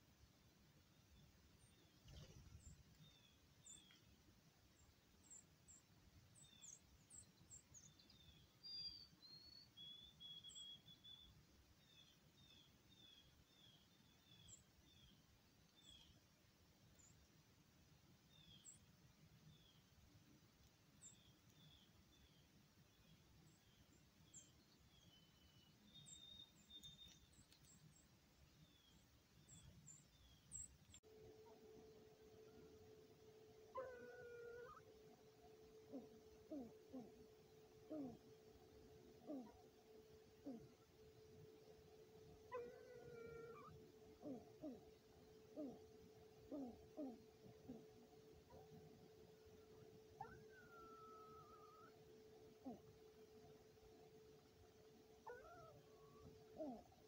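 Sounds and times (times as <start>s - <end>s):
low outdoor hiss: 0.0s - 57.0s
small birds chirping: 0.0s - 57.0s
whistled bird notes: 24.3s - 27.6s.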